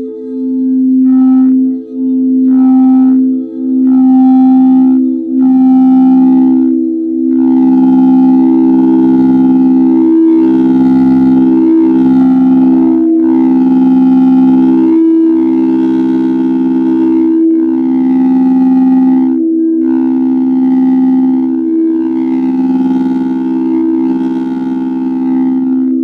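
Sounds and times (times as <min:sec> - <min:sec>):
sustained instrumental drone: 0:00.0 - 0:26.0.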